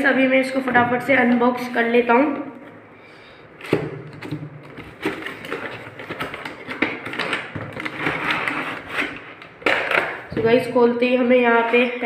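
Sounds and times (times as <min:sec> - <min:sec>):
plastic packaging crinkling: 0:04.0 - 0:10.3.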